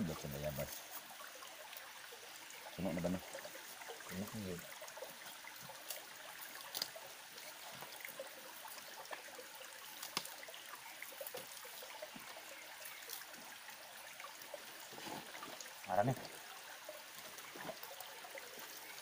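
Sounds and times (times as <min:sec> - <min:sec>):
stream trickling over rocks: 0:00.0 - 0:19.0.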